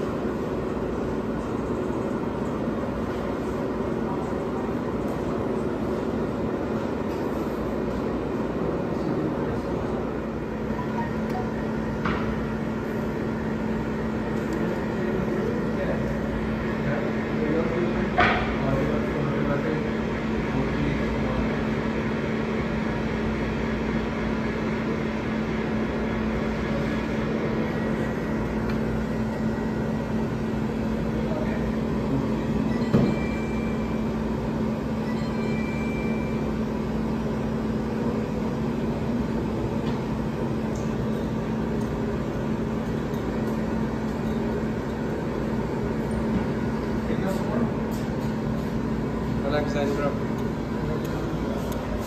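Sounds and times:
kitchen machinery hum: 0.0s - 52.0s
short high beeps: 35.0s - 36.5s.

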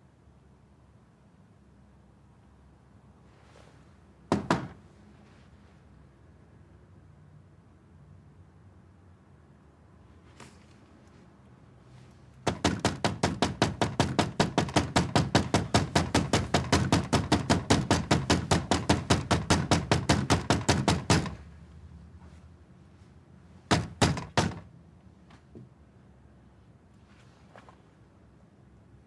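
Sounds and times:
fist knocking on door: 4.3s - 4.8s, 12.4s - 21.4s, 23.7s - 24.7s.

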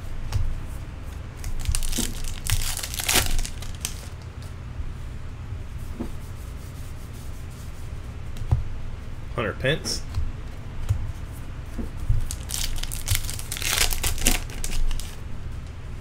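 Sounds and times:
card pack wrapper tearing and crinkling: 1.4s - 4.2s, 12.2s - 15.2s
cards being handled and flipped: 1.4s - 4.5s, 11.7s - 15.2s.

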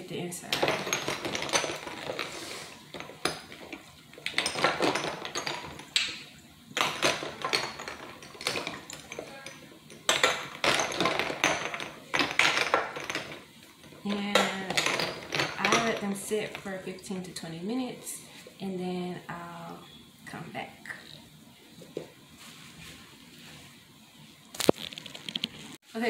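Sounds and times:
glass bottles clinking: 0.4s - 17.2s.

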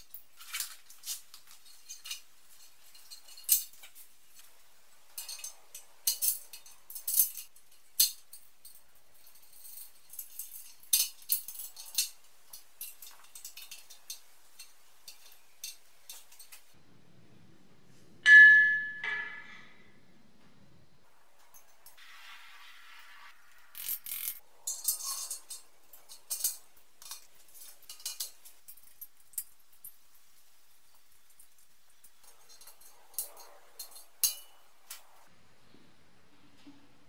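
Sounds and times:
small metal parts clinking: 0.0s - 16.8s, 23.7s - 35.2s
loud metallic ring: 18.2s - 19.6s.

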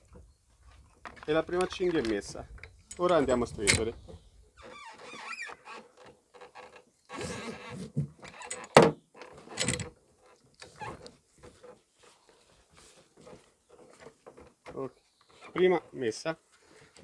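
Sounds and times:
buckle clicks and knocks: 0.0s - 4.2s
strap rustling and scraping: 3.0s - 17.0s.

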